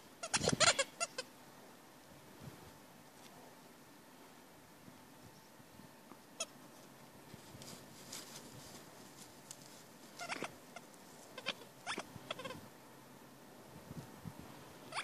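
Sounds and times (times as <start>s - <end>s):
shrub rustling: 6.5s - 12.7s.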